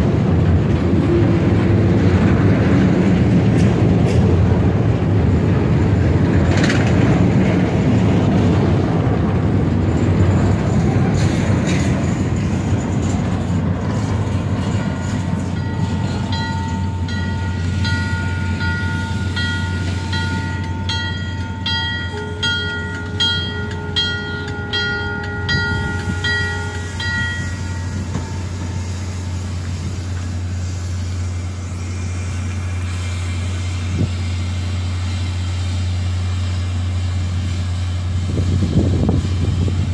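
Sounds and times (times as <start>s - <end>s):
freight train rumbling: 0.0s - 39.9s
train horn: 22.1s - 28.0s.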